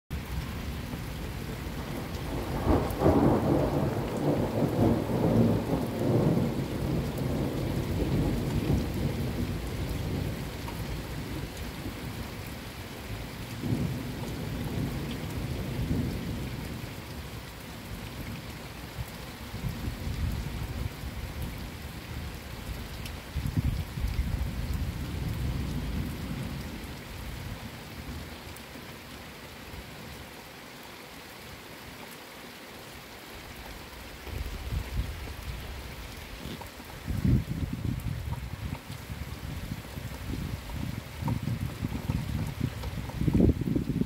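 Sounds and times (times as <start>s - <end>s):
steady rain: 0.1s - 44.0s
thunder rumbling: 1.6s - 12.2s.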